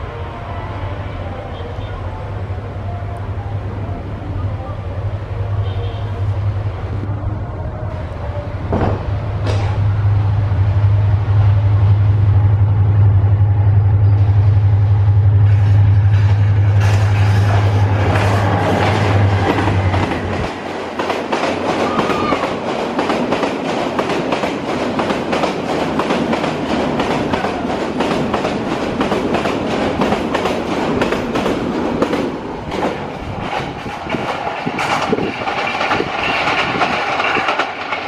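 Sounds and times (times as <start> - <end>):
locomotive engine hum: 0.0 - 38.0
train wheels clickety-clack: 8.7 - 9.9, 15.5 - 38.0.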